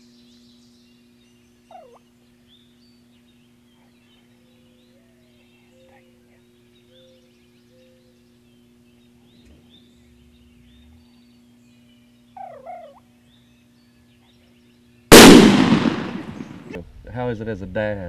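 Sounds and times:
faint songbird calls: 0.0s - 15.1s
turkey gobbling: 1.7s - 2.0s, 12.4s - 13.0s
loud shotgun shot: 15.1s - 16.8s.

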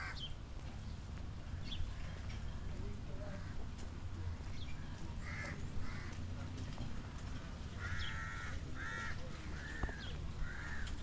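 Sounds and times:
crow cawing: 5.2s - 6.2s, 7.8s - 11.0s.

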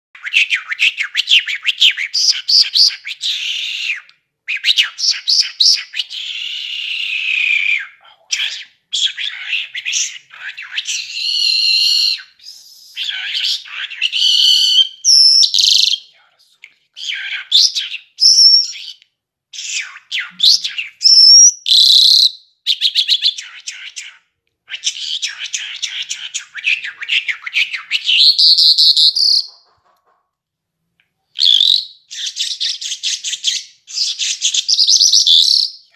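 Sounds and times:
lark singing whistled notes: 10.0s - 16.2s, 17.2s - 19.0s, 19.6s - 23.4s, 26.6s - 29.5s, 31.4s - 35.9s.

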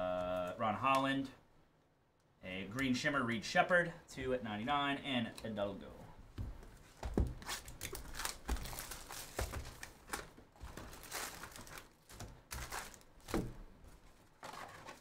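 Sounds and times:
foil packs crinkling: 7.4s - 13.5s, 14.2s - 15.0s.

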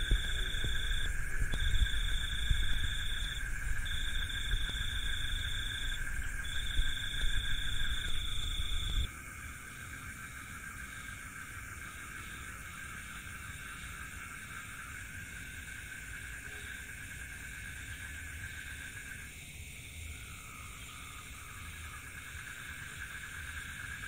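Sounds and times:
microphone handling noise: 0.0s - 9.1s
low continuous drone: 0.0s - 10.7s
insects trilling: 0.0s - 24.0s.

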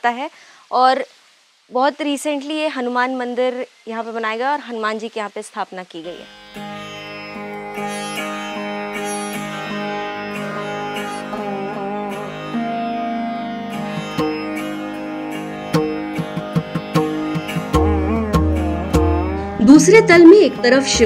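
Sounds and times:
plucked string instrument: 6.2s - 21.0s
steady drone: 7.1s - 21.0s
sharp drum strokes: 15.7s - 20.3s.

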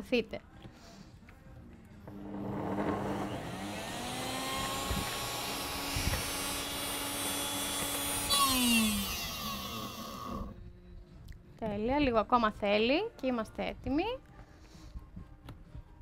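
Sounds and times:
blender motor grinding: 2.1s - 10.5s.

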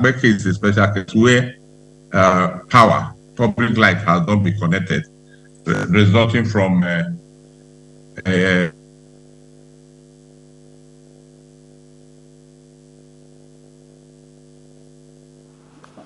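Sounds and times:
electrical hum: 0.0s - 16.0s.

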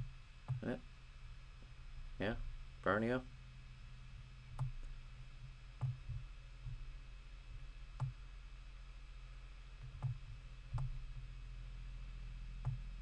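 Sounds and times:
steady low hum: 0.0s - 13.0s
computer mouse clicking: 4.6s - 5.0s, 8.0s - 8.2s, 12.6s - 12.9s.

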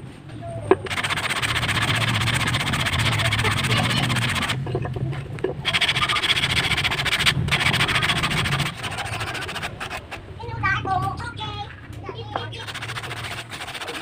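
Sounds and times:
sandpaper rasping on wood: 0.9s - 4.6s, 5.6s - 10.2s, 12.6s - 14.0s.

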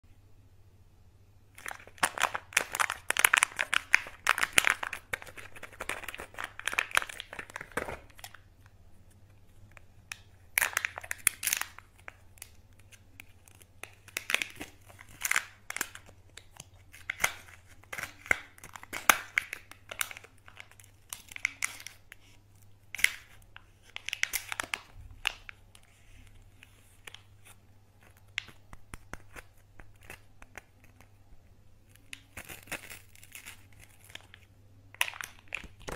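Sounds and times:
foil crinkling by hand: 1.6s - 8.5s, 9.4s - 31.2s, 31.9s - 35.9s.

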